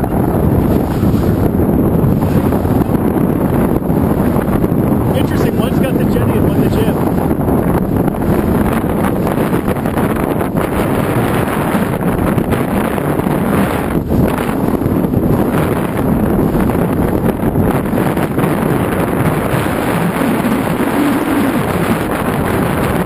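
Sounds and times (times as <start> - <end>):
heavy wind buffeting microphone: 0.0 - 23.0.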